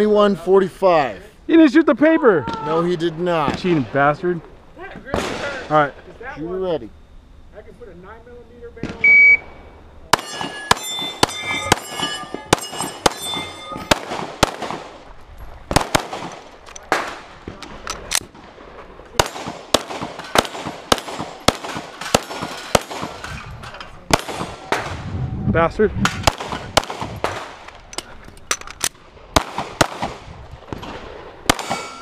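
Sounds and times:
pistol shots: 10.1s - 15.0s, 15.7s - 18.6s, 19.2s - 23.2s, 24.1s - 25.0s, 26.1s - 27.7s, 29.3s - 32.0s
bullet clanging on steel plate: 10.2s - 14.0s, 31.6s - 32.0s.

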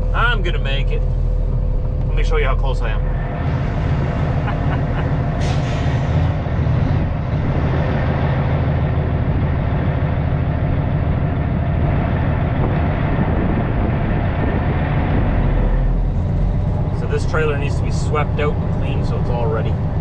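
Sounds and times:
diesel truck engine running: 0.0s - 20.0s
air hiss: 5.4s - 6.4s.

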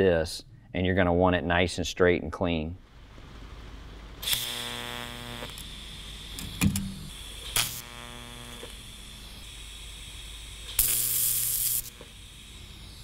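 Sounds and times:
steady high whine: 2.8s - 13.0s
welding arc buzzing: 4.1s - 13.0s.

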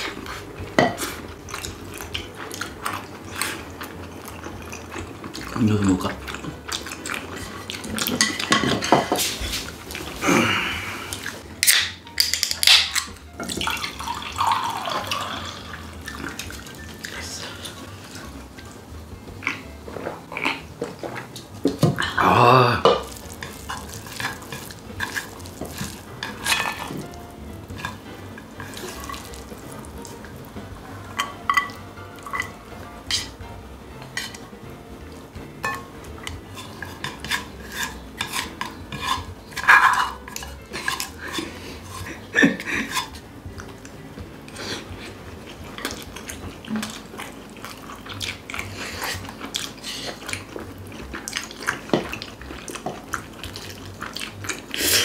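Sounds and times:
chopsticks and bowls clinking: 0.0s - 10.1s, 11.2s - 18.8s, 22.8s - 30.2s, 31.1s - 33.4s, 34.0s - 34.5s, 35.4s - 43.8s
drink being poured: 13.4s - 16.4s.

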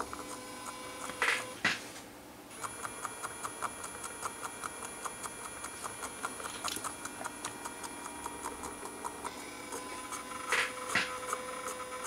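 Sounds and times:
washing machine motor whine: 2.5s - 12.0s.

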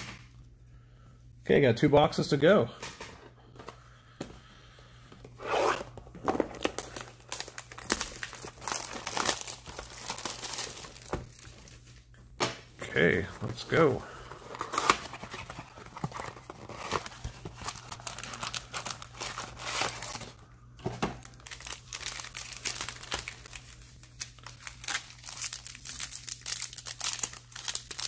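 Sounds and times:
foil packs crinkling: 6.4s - 12.1s, 13.0s - 28.0s
foil pack tearing open: 6.5s - 11.5s, 14.5s - 20.4s, 21.2s - 28.0s.

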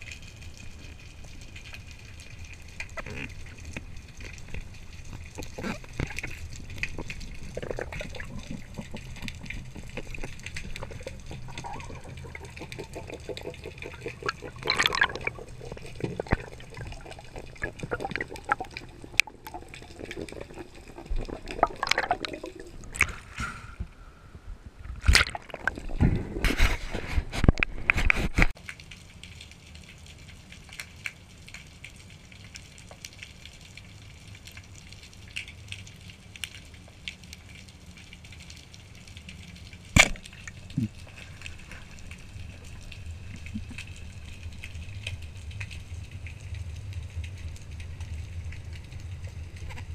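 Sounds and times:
underwater crackle: 0.0s - 49.9s
bubbles: 0.6s - 23.9s, 25.0s - 27.6s, 40.0s - 49.9s.

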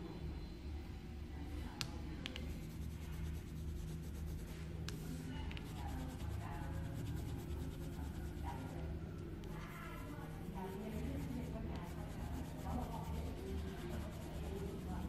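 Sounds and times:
steady low hum: 0.0s - 15.0s
pencil tapping: 1.8s - 2.6s
pencil scratching on paper: 2.4s - 8.8s, 9.5s - 15.0s.

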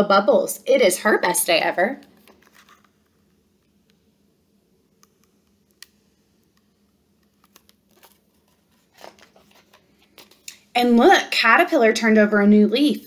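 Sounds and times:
faint steady hum: 0.0s - 13.0s
book handling clicks: 5.0s - 10.6s.

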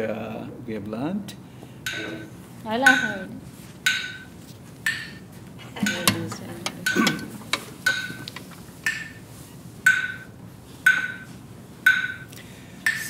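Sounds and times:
metronome ticking: 1.8s - 5.2s, 5.8s - 9.2s, 9.8s - 13.0s.

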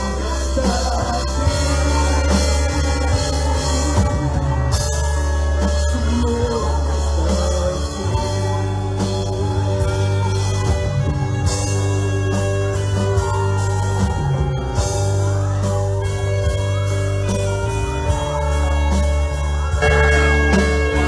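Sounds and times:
singing: 0.0s - 16.3s
live worship band music: 0.0s - 21.0s.

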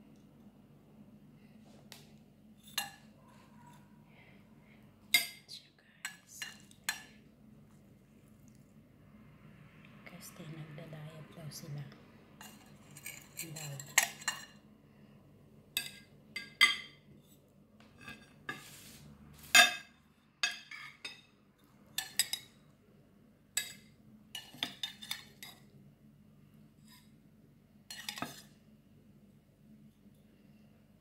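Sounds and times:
utensil clinking on plates: 15.8s - 17.0s, 19.5s - 21.3s.

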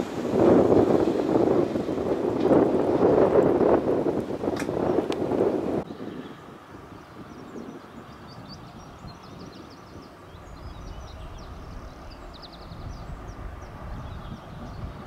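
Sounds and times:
locomotive engine rumble: 0.0s - 15.0s
small birds chirping: 5.8s - 15.0s.

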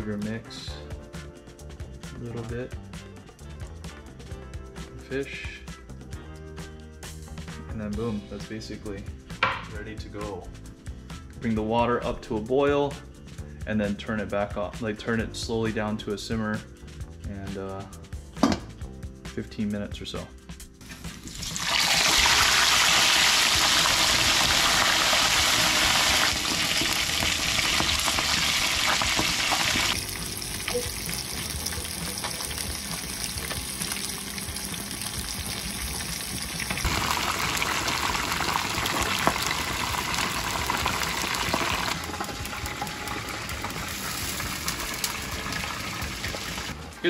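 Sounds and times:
fish deep-frying in oil: 20.9s - 46.8s.

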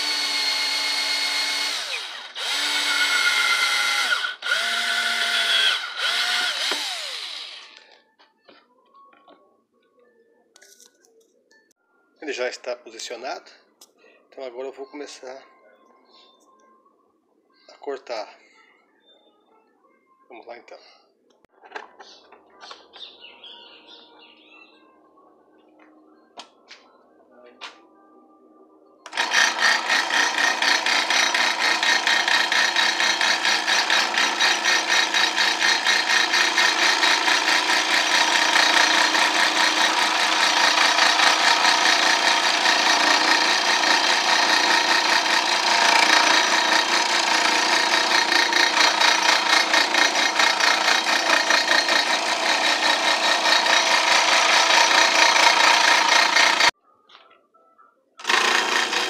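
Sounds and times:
scroll saw cutting wood: 0.0s - 8.0s, 29.1s - 56.7s, 58.2s - 59.0s.

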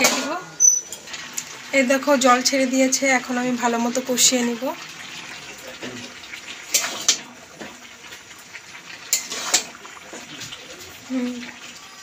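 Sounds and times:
meat sizzling: 0.0s - 12.0s
metal spatula scraping a pan: 6.7s - 7.3s, 9.0s - 10.5s.

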